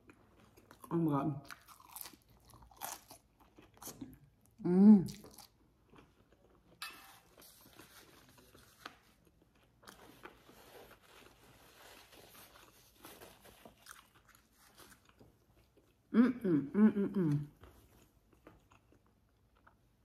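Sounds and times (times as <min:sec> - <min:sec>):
chewing crunchy food: 0:00.0 - 0:06.8, 0:12.4 - 0:16.1, 0:17.6 - 0:20.0.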